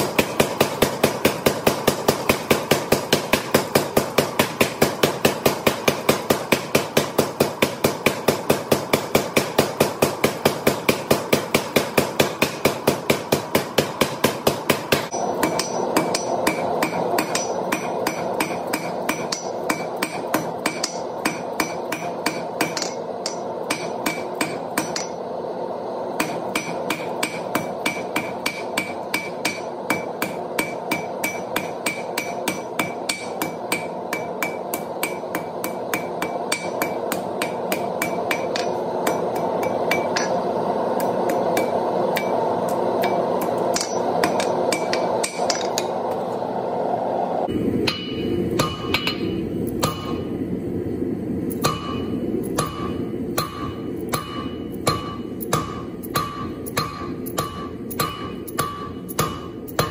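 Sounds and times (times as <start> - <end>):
hand hammer striking steel on anvil: 0.0 - 25.2, 26.2 - 46.0, 47.8 - 50.3, 51.5 - 59.9
power hammer pounding steel: 0.0 - 25.4, 26.1 - 46.0, 47.5 - 50.4, 51.5 - 59.9
anvil ringing: 13.3 - 25.3, 26.2 - 46.0, 47.8 - 50.3, 51.5 - 59.9.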